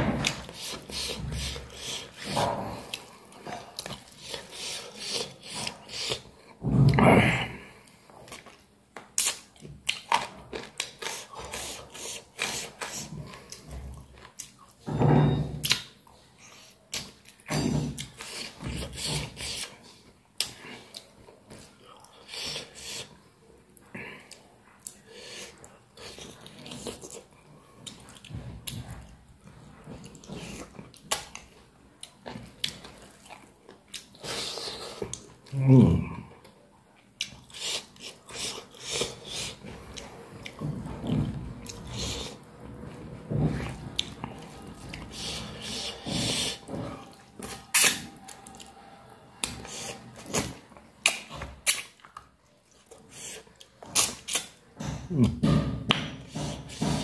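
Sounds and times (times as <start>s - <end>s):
man chewing: 0.1s - 7.0s, 7.6s - 14.8s, 15.6s - 55.4s
mouth smacks and clicks: 9.2s - 10.2s, 50.3s - 52.3s.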